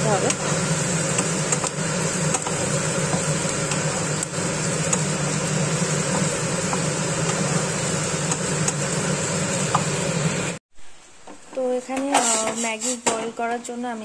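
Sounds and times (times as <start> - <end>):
vegetables sizzling in a wok: 0.0 - 14.0
wooden spatula scraping: 11.4 - 13.2.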